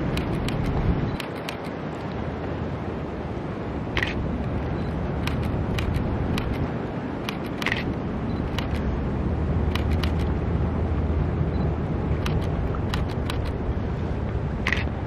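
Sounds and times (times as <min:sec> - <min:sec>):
sharp clicks: 0:00.1 - 0:01.7, 0:04.0 - 0:04.6, 0:05.2 - 0:06.6, 0:07.2 - 0:08.9, 0:09.7 - 0:10.3, 0:12.2 - 0:13.6, 0:14.6 - 0:14.9.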